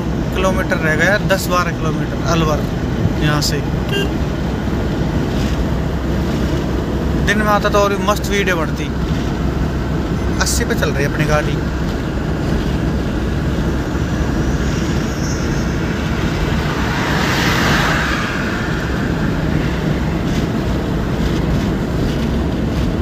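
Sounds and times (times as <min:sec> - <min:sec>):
car engine hum: 0:00.0 - 0:23.0
road and tyre noise: 0:00.0 - 0:23.0
rushing sound: 0:11.7 - 0:23.0.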